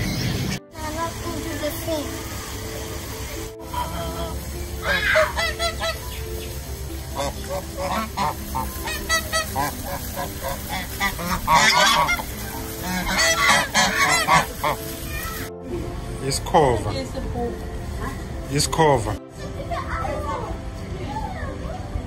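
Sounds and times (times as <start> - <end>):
geese honking: 3.6 - 15.2.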